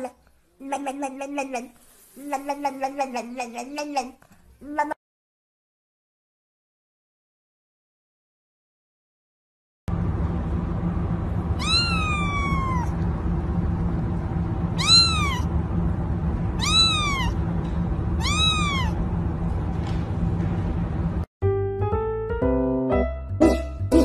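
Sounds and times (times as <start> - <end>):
steady low hum: 9.9 - 21.3
kitten meowing: 11.6 - 13.0, 14.8 - 15.5, 16.6 - 17.4, 18.2 - 19.0.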